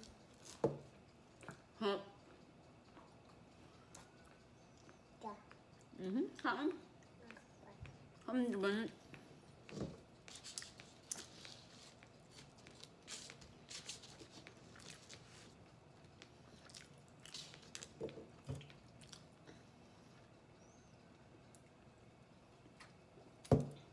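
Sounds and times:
chewing and biting food: 10.5 - 19.4.

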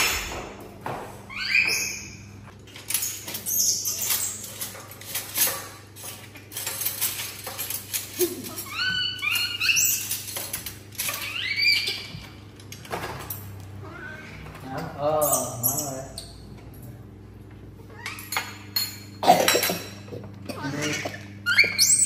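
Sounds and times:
monkey squeaking: 1.3 - 2.3, 8.6 - 10.3, 11.1 - 12.2, 15.2 - 16.3, 20.7 - 22.0.

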